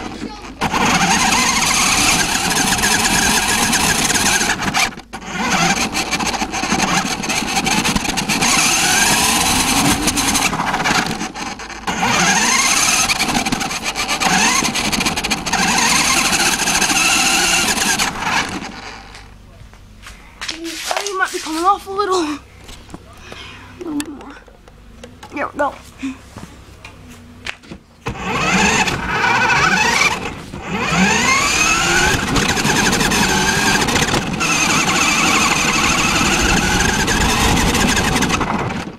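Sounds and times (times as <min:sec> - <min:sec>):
motor whining: 0:00.0 - 0:19.3, 0:28.0 - 0:38.9
radio-controlled car driving: 0:00.0 - 0:19.3, 0:28.0 - 0:38.9.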